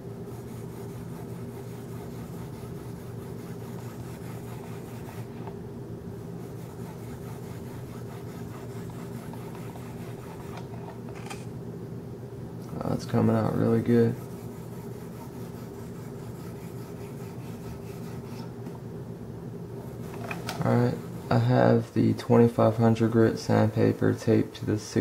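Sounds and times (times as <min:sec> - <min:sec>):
steady low hum: 0:00.0 - 0:25.0
sandpaper rubbing on blade: 0:00.3 - 0:05.5, 0:06.4 - 0:10.8, 0:13.8 - 0:18.5.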